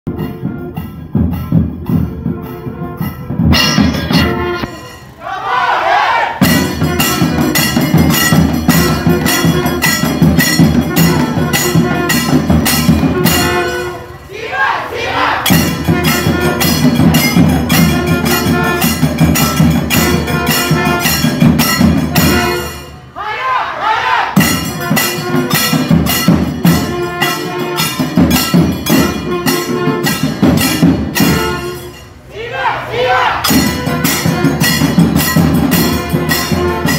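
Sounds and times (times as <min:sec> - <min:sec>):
drum strokes: 0:00.1 - 0:23.2, 0:24.3 - 0:32.3, 0:33.2 - 0:36.9.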